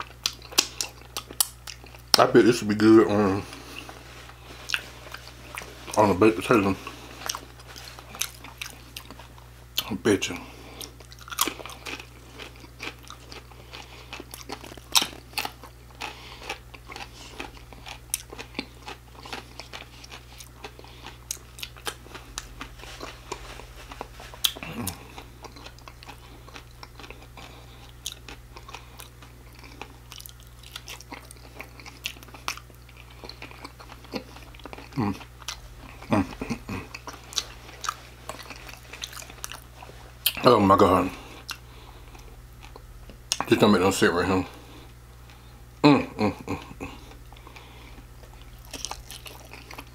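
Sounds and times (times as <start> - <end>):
chewing and biting food: 0.0 - 45.5, 46.4 - 49.9.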